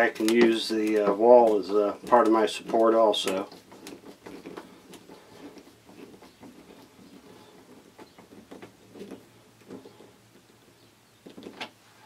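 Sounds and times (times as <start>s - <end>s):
screw scraping and clicking: 2.1s - 10.5s.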